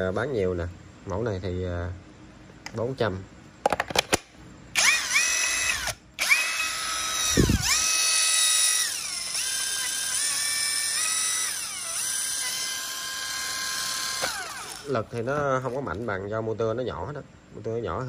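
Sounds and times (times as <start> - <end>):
small electric power tool motor: 4.7 - 15.7.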